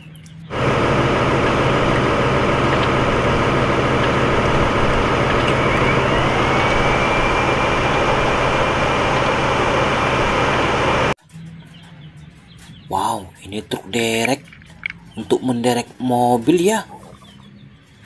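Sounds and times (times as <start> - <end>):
diesel engine running: 0.4 - 11.2
high whine: 0.5 - 11.2.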